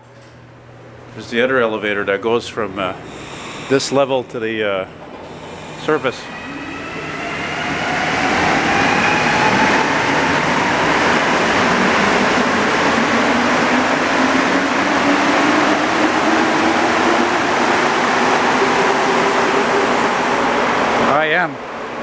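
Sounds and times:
train rushing rumble: 4.8 - 22.0
train motor whine rising: 5.2 - 20.6.

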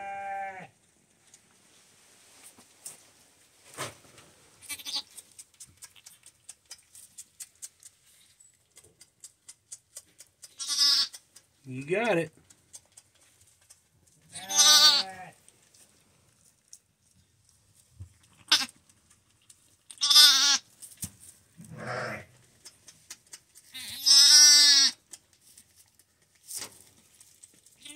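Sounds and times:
lamb bleating: 0.0 - 0.7, 4.6 - 5.1, 10.6 - 11.2, 14.3 - 15.4, 18.3 - 18.8, 19.9 - 20.6, 21.7 - 22.3, 23.7 - 25.0.

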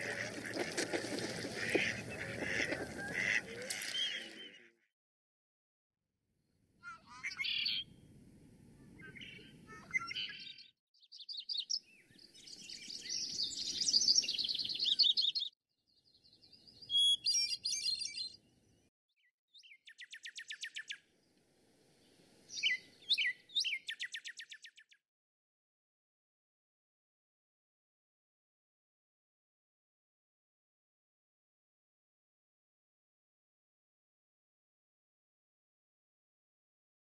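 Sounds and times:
songbirds singing: 0.0 - 4.7, 8.9 - 21.2, 22.0 - 25.0
faint outdoor background: 6.0 - 25.0.

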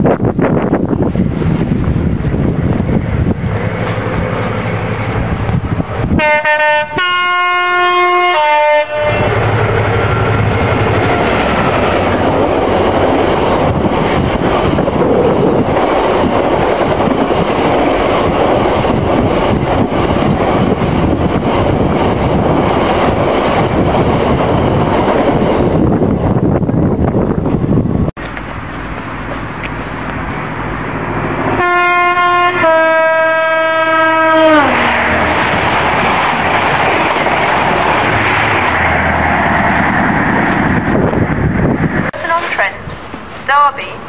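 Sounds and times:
freight train rumbling past: 0.0 - 43.5
two-tone train horn: 6.1 - 9.4, 31.6 - 34.9.

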